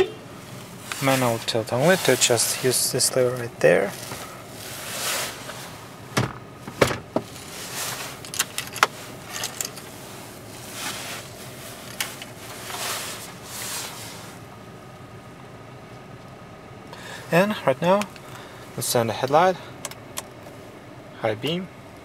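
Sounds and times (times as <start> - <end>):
car engine idling: 0.0 - 22.0
steering lever clicks and clunks: 8.1 - 9.9, 19.2 - 20.4
keys jangling: 8.2 - 9.9.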